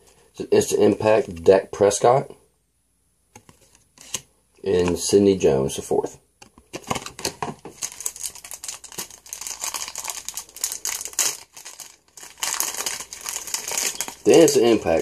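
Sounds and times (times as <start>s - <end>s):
foil pack tearing and crinkling: 6.9s - 15.0s.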